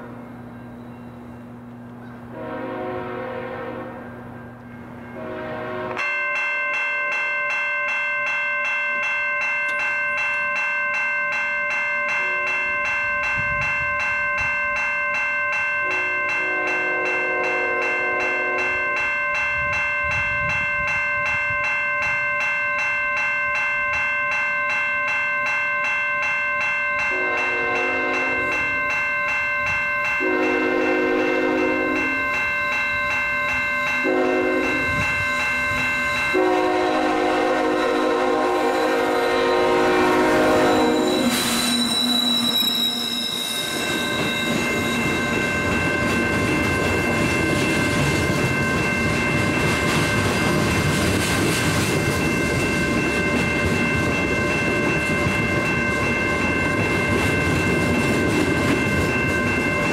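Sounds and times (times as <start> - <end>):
railway crossing bell ringing: 0.0 - 59.9
locomotive horn blasts: 2.3 - 4.2, 5.2 - 6.1, 15.9 - 18.8, 27.1 - 28.6, 30.2 - 32.2, 34.0 - 34.9, 36.3 - 42.3.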